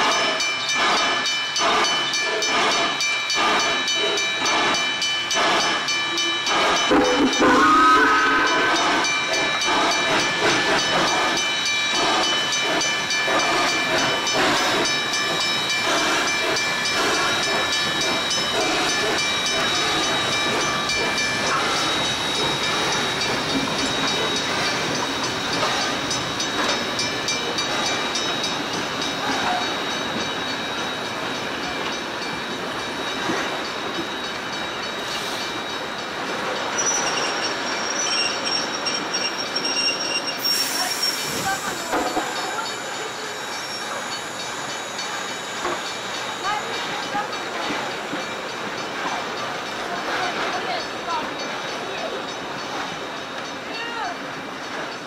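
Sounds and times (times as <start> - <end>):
steam locomotive hissing: 0.0 - 55.0
train wheels clicking on rails: 0.0 - 55.0
high wheel squeal: 6.2 - 11.4, 15.6 - 48.4.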